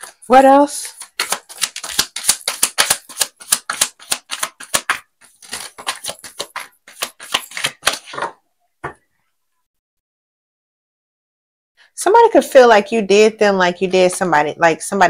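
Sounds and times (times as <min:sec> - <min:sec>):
cards being shuffled: 0:00.0 - 0:08.4
card tap: 0:01.0 - 0:09.0.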